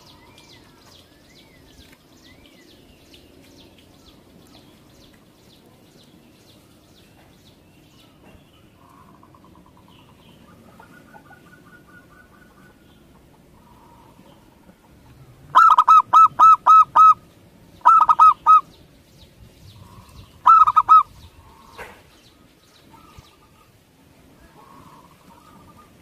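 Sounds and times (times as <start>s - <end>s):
dove staccato cooing: 8.8s - 18.7s, 19.8s - 23.8s, 24.4s - 26.0s.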